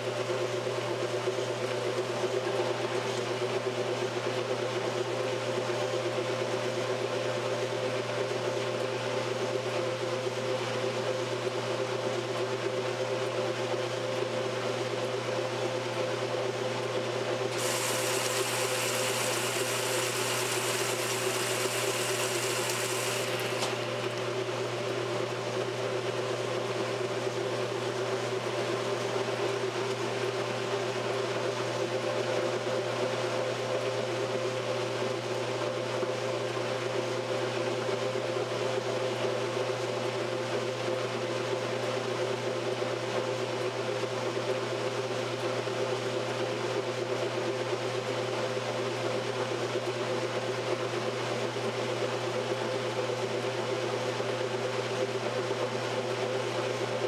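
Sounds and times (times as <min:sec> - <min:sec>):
washing machine agitating: 0:17.4 - 0:25.8.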